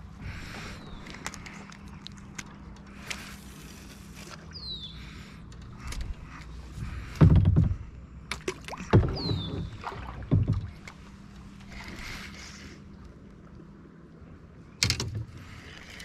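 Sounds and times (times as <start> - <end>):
paddle knocks: 6.8 - 11.0
paddle strokes in water: 8.4 - 13.0.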